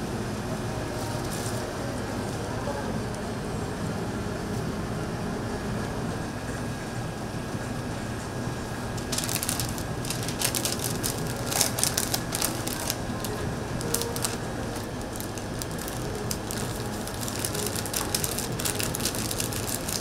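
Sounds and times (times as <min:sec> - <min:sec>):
steady low hum: 0:00.0 - 0:20.0
paper wrapper crinkling: 0:09.0 - 0:20.0.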